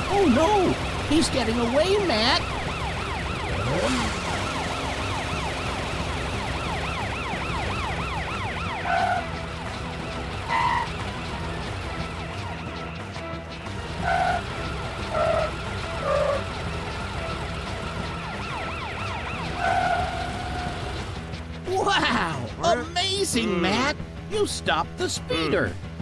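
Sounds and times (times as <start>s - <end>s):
cartoon police siren warbling: 0.0s - 11.7s, 14.0s - 14.4s, 15.1s - 16.5s, 17.8s - 21.0s.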